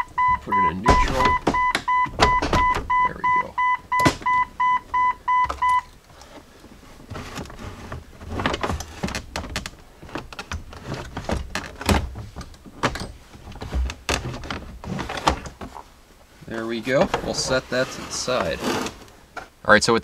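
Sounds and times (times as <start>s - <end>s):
electronic warning chime beeping: 0.0s - 5.9s
plastic knocks and scraping: 5.4s - 15.9s, 16.9s - 19.5s.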